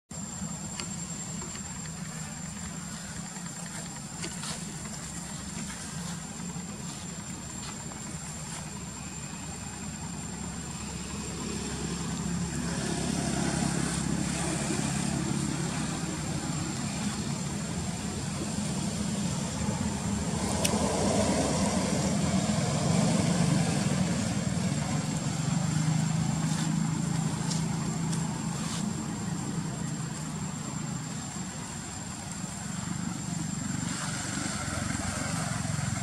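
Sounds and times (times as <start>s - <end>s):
low engine hum: 0.2s - 36.0s.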